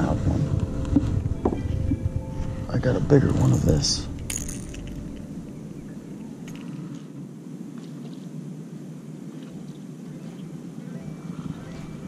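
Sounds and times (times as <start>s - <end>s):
low steady background noise: 0.0s - 12.0s.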